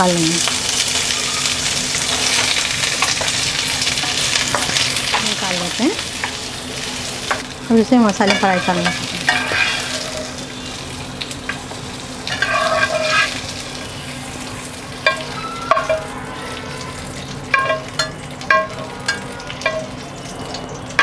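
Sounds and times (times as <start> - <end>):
peppers sizzling in oil: 0.0 - 21.0
metal spatula stirring and scraping: 8.2 - 10.3, 12.2 - 13.6
spatula tapping pan with metallic ring: 17.5 - 19.9.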